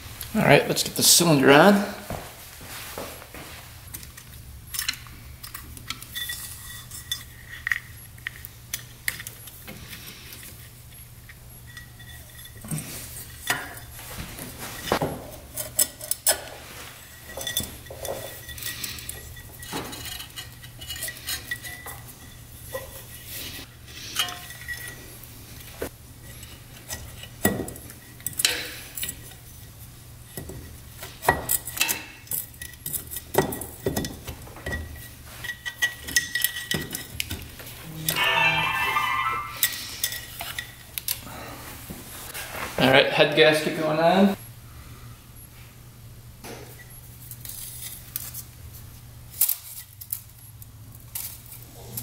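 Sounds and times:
metal parts and tools clinking: 4.2 - 11.0, 14.6 - 25.0, 30.3 - 41.2.

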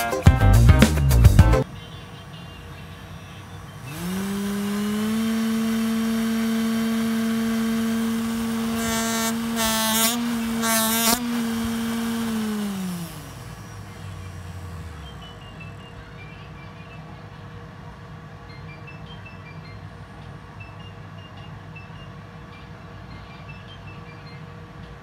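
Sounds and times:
small electric motor whine: 2.8 - 16.2.

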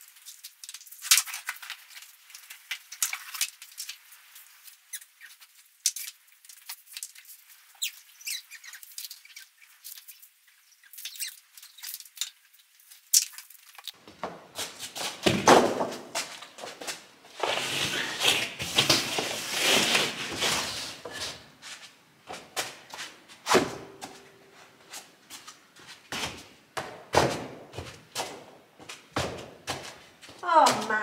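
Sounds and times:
mat scraping on concrete: 13.9 - 26.5, 27.2 - 31.0.

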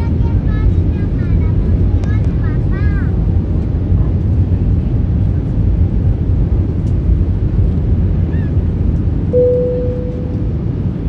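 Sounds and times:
airplane cabin rumble: 0.0 - 11.0
steady tone: 9.4 - 11.0.

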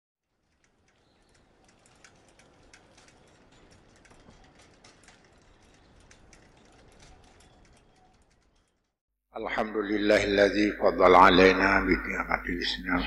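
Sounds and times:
faint clicking and crackling: 0.2 - 9.0.

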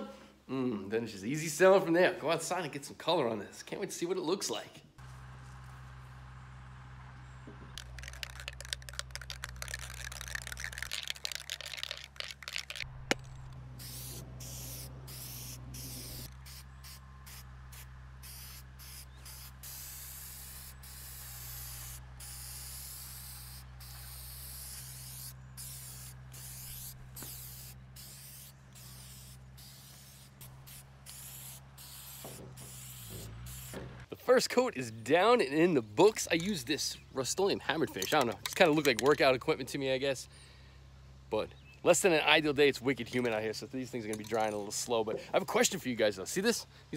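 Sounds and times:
crackly rattling: 7.7 - 13.6
spray paint can hissing: 7.7 - 33.8.

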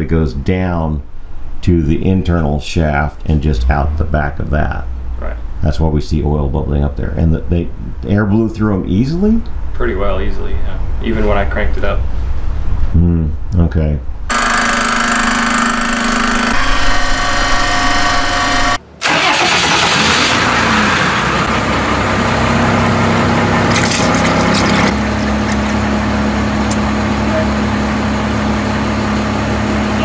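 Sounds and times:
workshop machinery running: 14.3 - 30.0.

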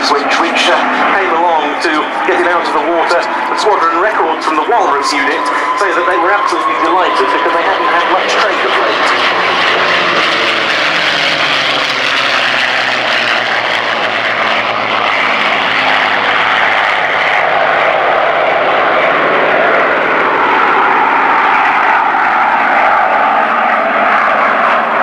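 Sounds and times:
propeller plane engines flying past: 0.0 - 25.0.

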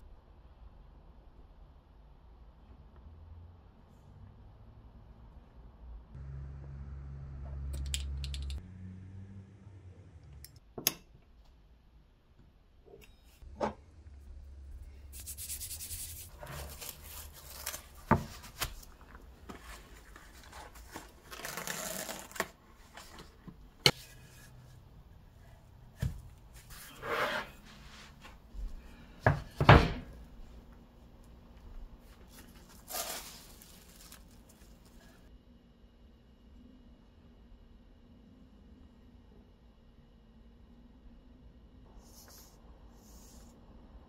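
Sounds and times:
cling film rustling: 16.2 - 24.4, 32.0 - 35.2.

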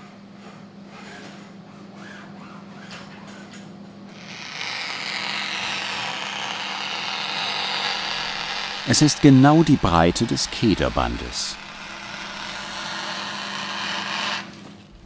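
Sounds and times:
shears cutting cloth: 4.1 - 14.9.

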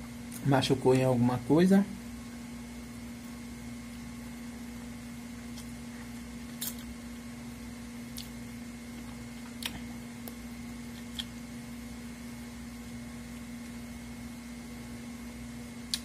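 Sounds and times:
wet mouth clicks and lip smacks: 6.6 - 6.9, 8.1 - 8.4.

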